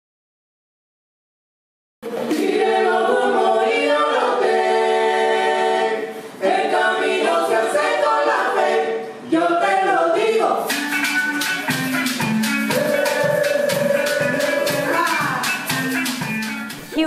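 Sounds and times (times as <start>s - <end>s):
a cappella group singing in harmony: 2.0s - 11.6s, 12.5s - 16.2s.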